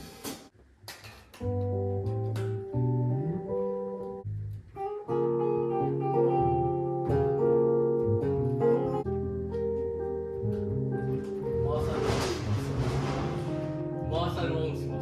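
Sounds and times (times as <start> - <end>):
band music led by guitar: 4.8 - 15.0.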